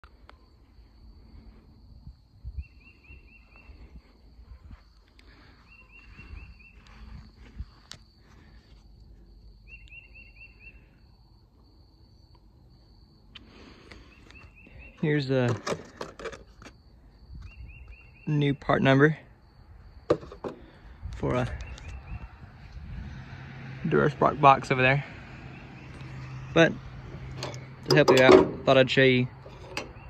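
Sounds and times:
footsteps on grass: 3.7 - 8.8.

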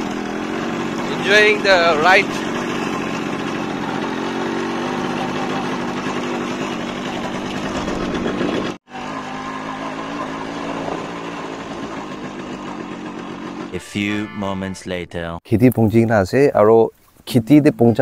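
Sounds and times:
motorcycle engine running: 0.0 - 13.9.

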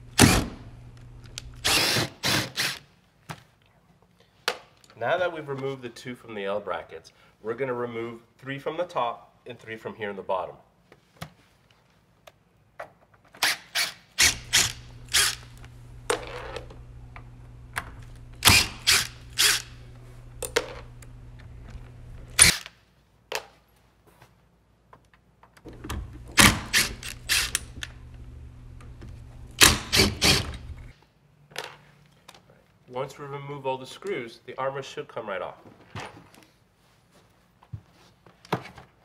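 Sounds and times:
cordless driver running: 0.2 - 2.8, 14.2 - 22.6, 25.7 - 30.9.

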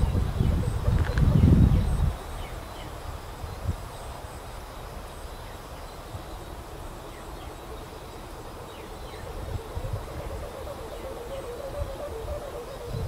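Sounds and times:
wind rumbling on microphone: 0.0 - 13.0
kite hummer droning: 5.6 - 13.0.

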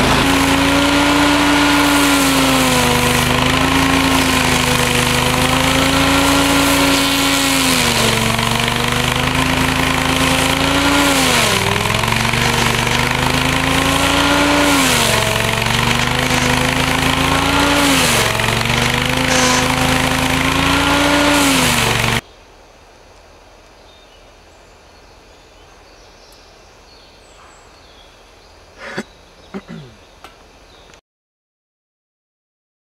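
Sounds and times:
cutting disc grinding wood: 0.0 - 22.2
stump grinder engine at full throttle: 0.0 - 22.2.

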